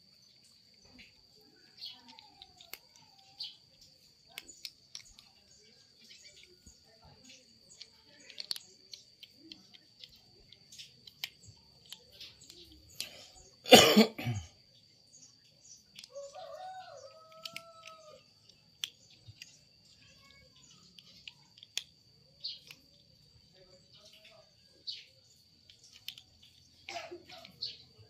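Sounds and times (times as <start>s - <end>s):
kitten chewing dry kibble: 0.0s - 13.6s, 15.3s - 28.0s
cough-like burst: 13.7s - 14.5s
rooster crowing: 16.1s - 18.2s.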